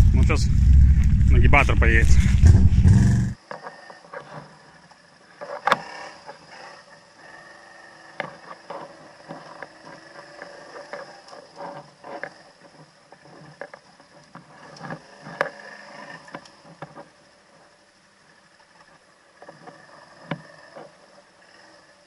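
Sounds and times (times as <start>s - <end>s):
quad bike running: 0.0s - 3.4s.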